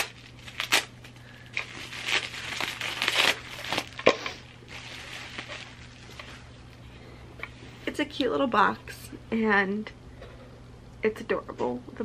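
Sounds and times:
bubble wrap crinkling: 0.0 - 6.8.

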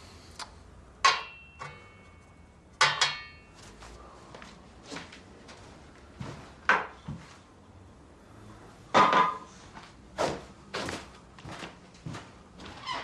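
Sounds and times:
objects knocking and clattering: 9.0 - 9.5.

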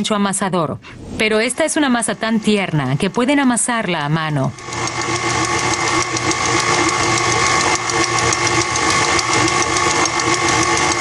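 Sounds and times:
stand mixer motor humming: 3.0 - 11.0.

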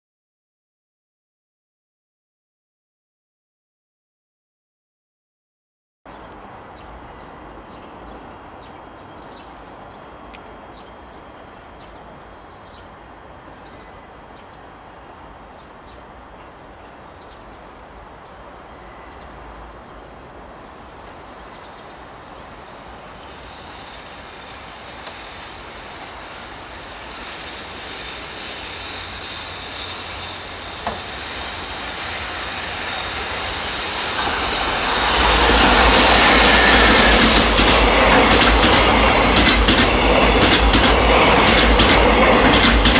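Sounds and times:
freight train rumbling past: 6.3 - 42.9
train wheels clattering over rail joints: 34.2 - 42.9.

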